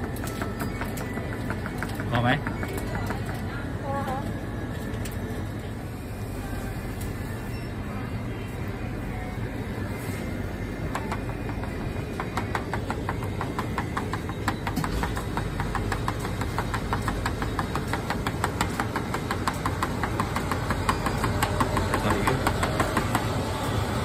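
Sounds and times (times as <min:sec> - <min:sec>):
low machine hum: 0:00.0 - 0:24.0.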